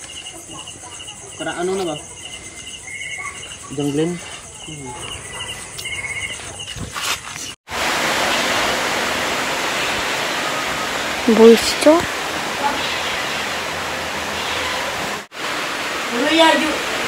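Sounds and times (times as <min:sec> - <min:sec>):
crickets chirping: 0:00.0 - 0:16.6
steady rushing noise: 0:07.7 - 0:17.0.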